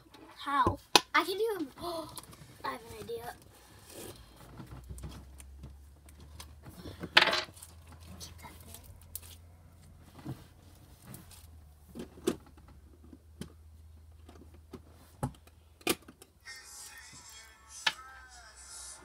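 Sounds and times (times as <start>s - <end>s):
background music: 16.4s - 19.0s.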